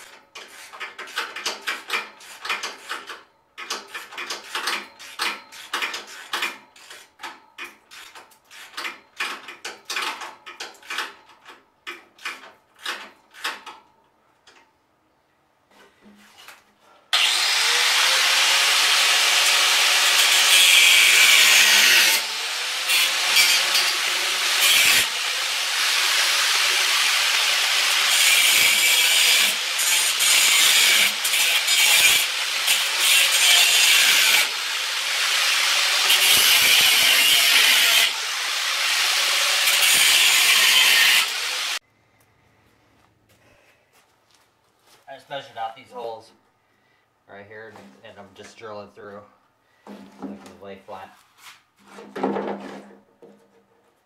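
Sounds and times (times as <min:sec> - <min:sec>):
power drill drilling into wood: 0:17.2 - 0:29.8
scraping on wood: 0:51.2 - 0:54.0.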